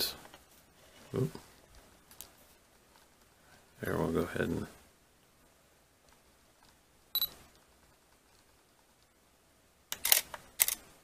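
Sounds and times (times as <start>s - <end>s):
camera focus beep: 7.2s - 7.4s
camera shutter clicks: 9.9s - 10.8s.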